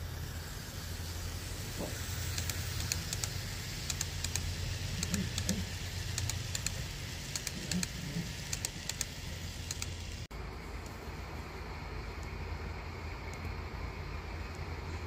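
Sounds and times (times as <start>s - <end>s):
model train cars humming: 0.0s - 15.0s
wheels clicking over rail joints: 1.7s - 10.0s.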